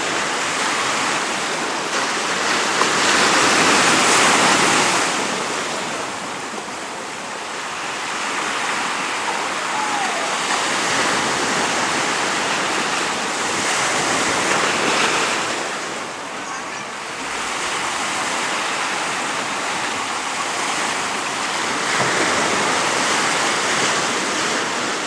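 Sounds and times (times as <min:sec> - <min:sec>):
sea surf breaking on shore: 0:00.0 - 0:25.0.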